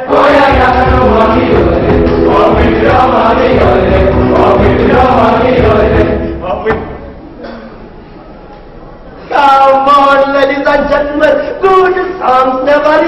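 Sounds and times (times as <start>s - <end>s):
group singing a chant: 0.0s - 6.4s.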